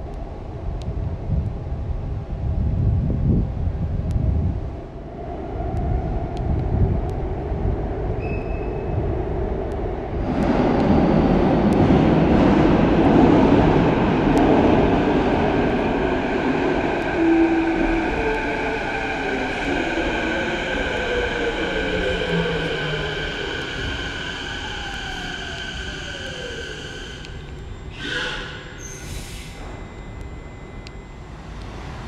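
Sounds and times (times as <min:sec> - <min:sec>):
train rushing rumble: 0:08.9 - 0:27.4.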